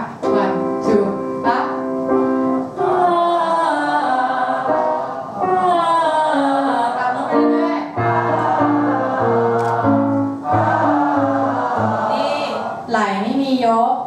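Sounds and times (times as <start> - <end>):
piano chords: 0.0 - 13.4
voices singing vocal warm-up: 2.4 - 13.4.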